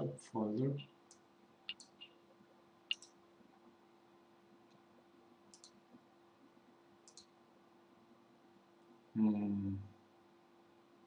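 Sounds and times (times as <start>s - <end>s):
faint steady hum: 0.0s - 11.0s
mouse buttons clicking: 1.1s - 2.1s, 2.9s - 3.2s, 5.5s - 5.8s, 7.1s - 7.3s.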